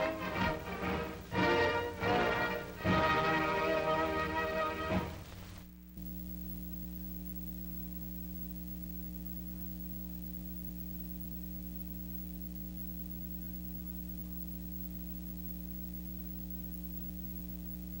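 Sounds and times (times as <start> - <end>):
closing music: 0.0 - 5.6
electrical hum: 0.0 - 18.0
faint hiss: 0.0 - 18.0.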